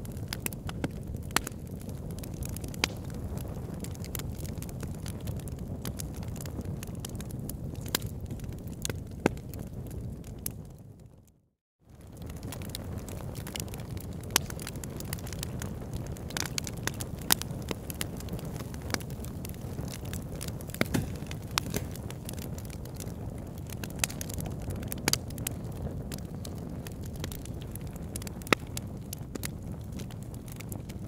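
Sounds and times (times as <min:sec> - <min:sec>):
log fire crackling: 0:00.0 - 0:11.0, 0:11.9 - 0:31.0.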